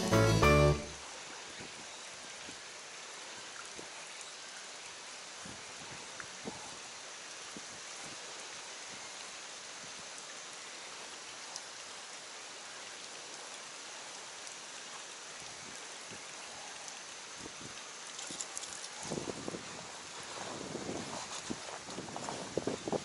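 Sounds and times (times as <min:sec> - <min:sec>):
flowing creek water: 0:00.0 - 0:23.0.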